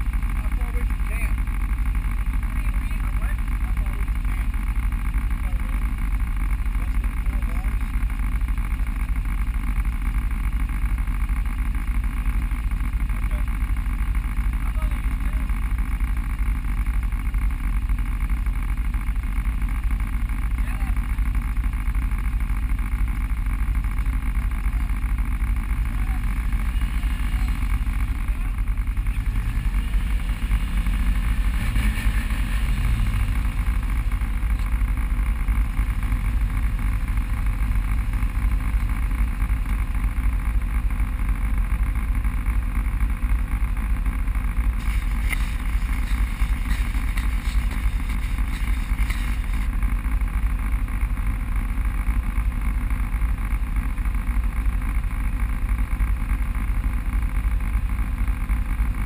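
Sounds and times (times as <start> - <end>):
off-road vehicle engine rumble: 0.0 - 59.0.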